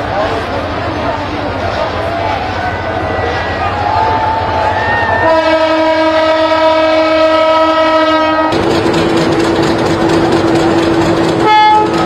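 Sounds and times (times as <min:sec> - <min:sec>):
running train noise: 0:00.0 - 0:12.0
locomotive horn blast: 0:05.2 - 0:08.6, 0:11.4 - 0:12.0.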